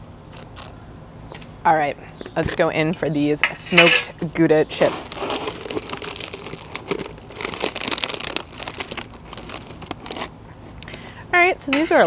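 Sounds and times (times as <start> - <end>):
chip bag crinkling: 4.7 - 11.1.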